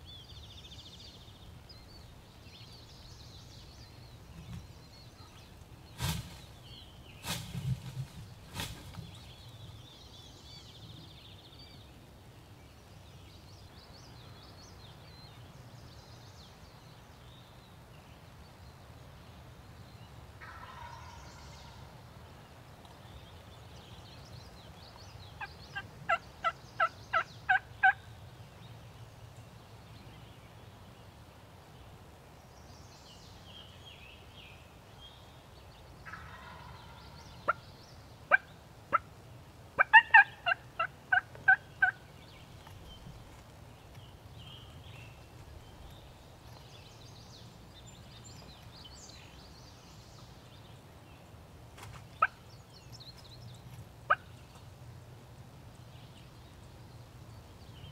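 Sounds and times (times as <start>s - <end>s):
wild turkey yelping: 20.4s - 21.7s, 25.4s - 28.0s, 36.0s - 37.6s, 39.8s - 42.0s.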